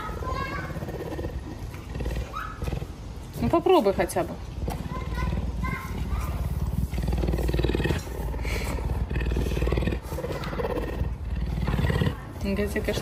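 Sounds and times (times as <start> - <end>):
animal purring rumble: 0.0 - 13.0.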